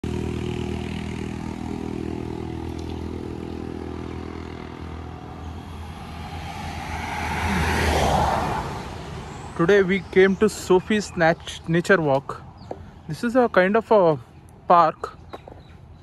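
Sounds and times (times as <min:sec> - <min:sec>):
low engine hum: 0:00.0 - 0:13.6
vehicle driving past: 0:00.1 - 0:09.6.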